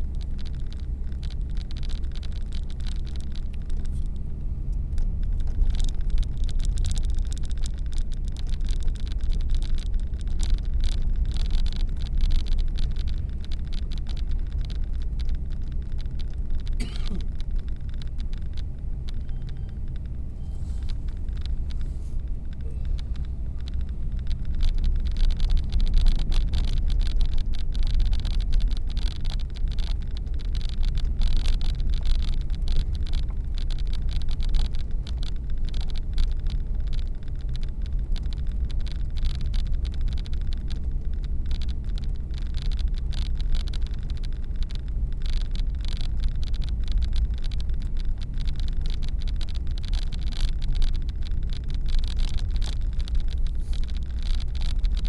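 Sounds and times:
car engine and tyre rumble: 0.0 - 55.0
road hiss: 20.3 - 23.5, 53.5 - 53.9.

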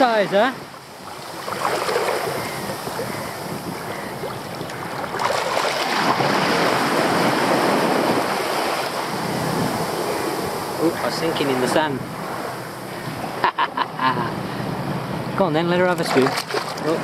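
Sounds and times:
small waves lapping: 0.0 - 13.5, 15.8 - 17.0
wind on microphone: 0.2 - 13.4.

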